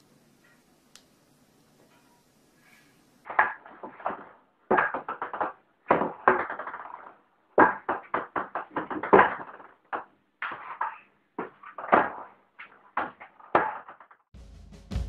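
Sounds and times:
table tennis ball bouncing: 3.4s - 14.0s.

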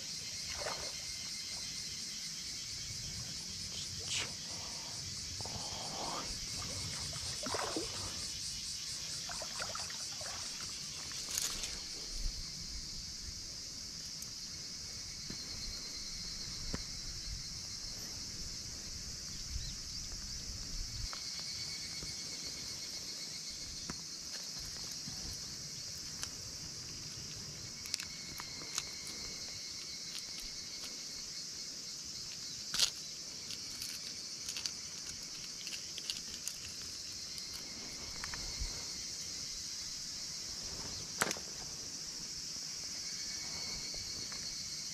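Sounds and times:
insects chirring: 0.0s - 44.9s
hands handling fish and lure: 32.3s - 38.7s.

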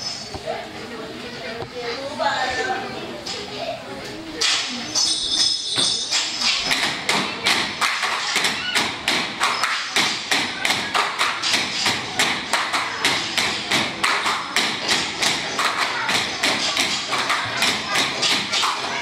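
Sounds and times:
bamboo poles knocking: 6.7s - 18.8s.

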